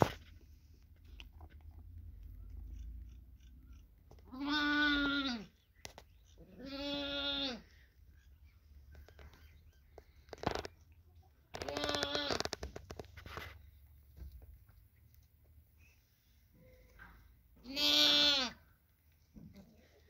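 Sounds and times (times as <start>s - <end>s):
lamb bleating: 4.2s - 5.6s, 6.4s - 7.7s, 11.6s - 12.5s, 17.6s - 18.7s
rustling and clicks of handling: 8.8s - 15.6s.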